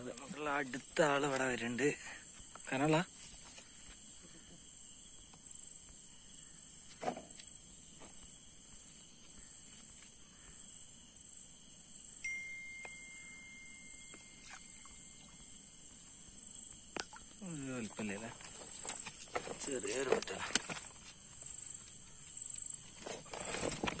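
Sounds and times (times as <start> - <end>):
night insects chirring: 0.0 - 24.0
thin steady tone: 12.0 - 18.3.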